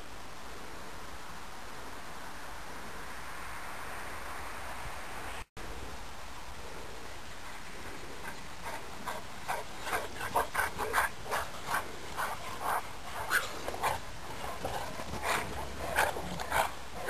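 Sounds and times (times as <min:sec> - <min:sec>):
steady background hiss: 0:00.0 - 0:17.0
dogs barking and yelping: 0:08.2 - 0:17.0.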